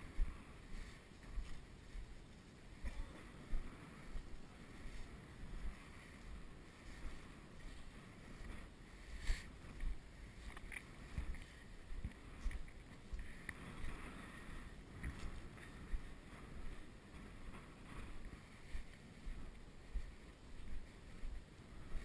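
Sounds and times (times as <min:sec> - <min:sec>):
footsteps in dry sand: 0:00.0 - 0:22.0.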